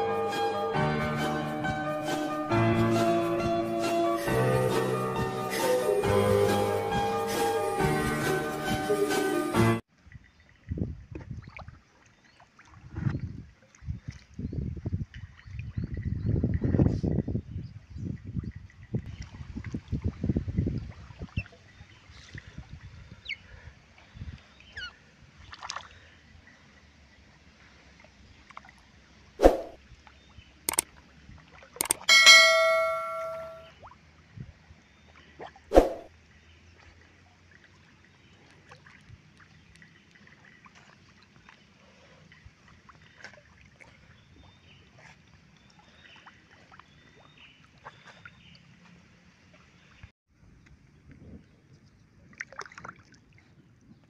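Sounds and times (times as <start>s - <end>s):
water lapping: 10.0s - 17.2s, 17.8s - 31.8s, 34.9s - 50.1s, 51.9s - 54.0s
high falling chirps: 31.8s - 33.7s.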